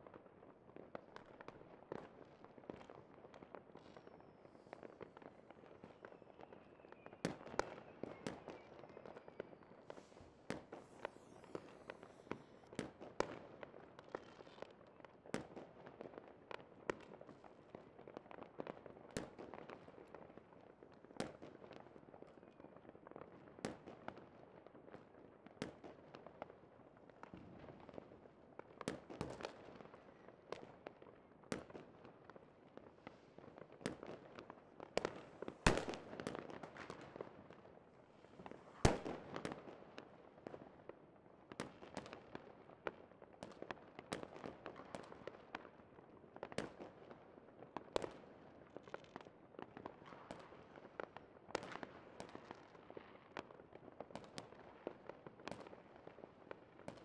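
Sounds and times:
fireworks bangs and cracks: 0.8 - 14.7, 33.0 - 40.8, 41.5 - 45.7, 47.8 - 53.5
high hissing whistle: 10.0 - 12.7.

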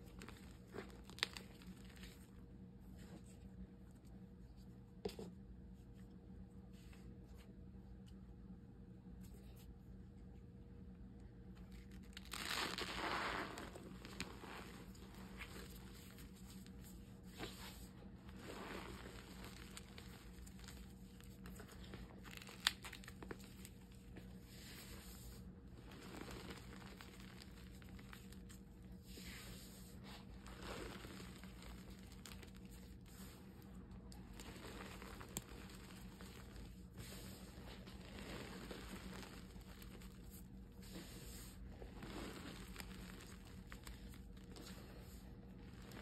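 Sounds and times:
hands crushing chalk powder: 0.0 - 2.3, 11.6 - 46.0
faint steady hum: 0.0 - 46.0.

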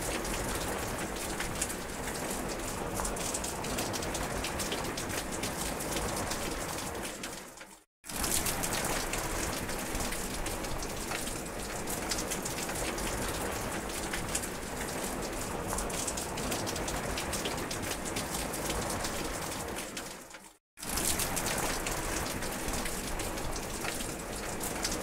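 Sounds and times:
rain on grass and foliage: 0.0 - 25.0.

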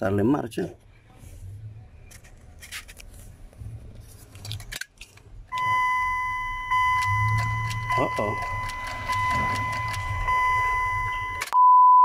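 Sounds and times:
steady electronic beep tone: 5.5 - 12.0.

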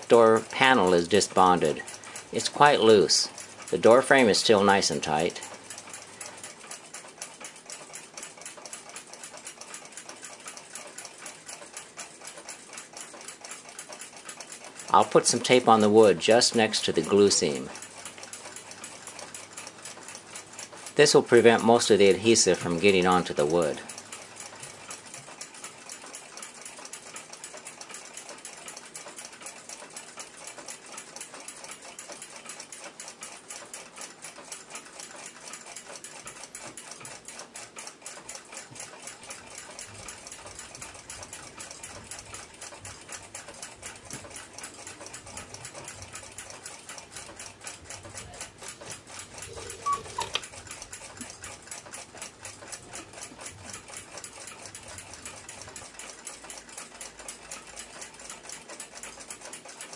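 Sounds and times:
mechanical clock ticking: 0.0 - 59.9
rub with short squeak: 49.4 - 50.4.

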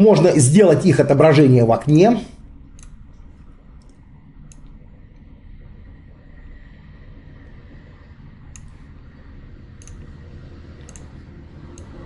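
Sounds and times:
low background hum: 0.0 - 12.0
computer mouse clicking: 2.7 - 3.0, 3.8 - 5.3, 8.5 - 8.9, 9.8 - 10.2, 10.8 - 12.0.

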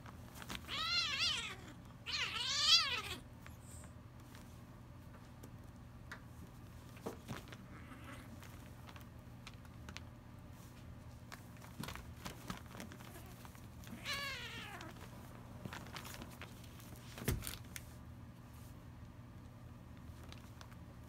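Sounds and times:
kitten meowing: 0.7 - 3.2, 13.9 - 15.0
rustling and scratching on paper: 6.4 - 17.9.

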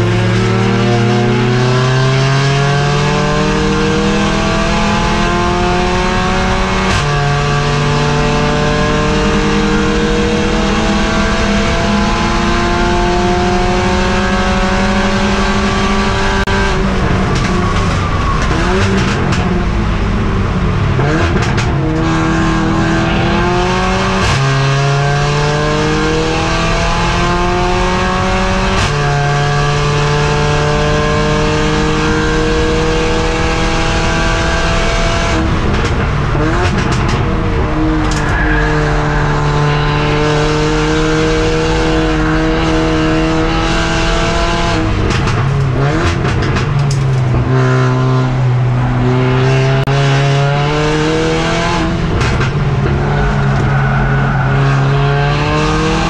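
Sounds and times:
race car engine at full throttle: 0.0 - 56.0
exhaust pops and crackles: 35.4 - 37.3, 44.9 - 47.5.

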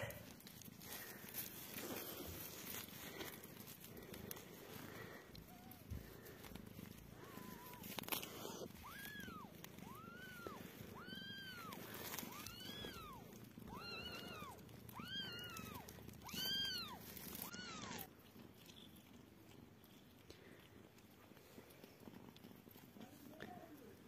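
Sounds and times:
kitten mewing: 0.0 - 18.2.

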